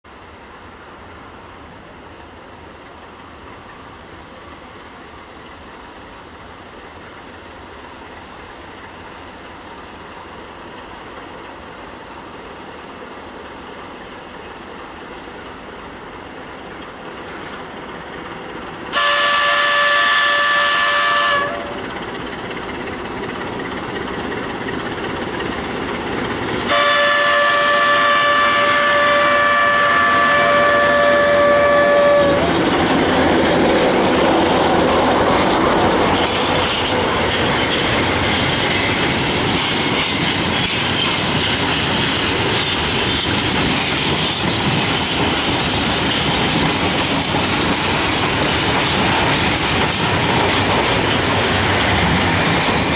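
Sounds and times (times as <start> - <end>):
diesel locomotive engine: 0.1 - 52.9
train horn blasts: 18.9 - 21.8, 26.6 - 32.6
wagon wheels clicking over rail joints: 32.3 - 52.9.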